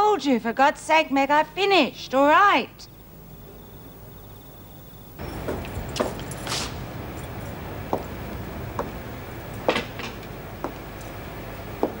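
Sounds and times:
low room hum: 0.1 - 12.0
footsteps on a hard floor: 5.4 - 6.8.

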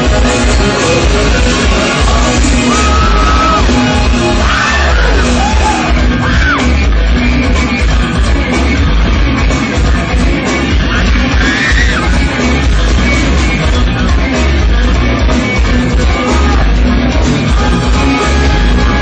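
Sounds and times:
live rock band: 0.0 - 19.0
singer yelling: 2.1 - 6.8.

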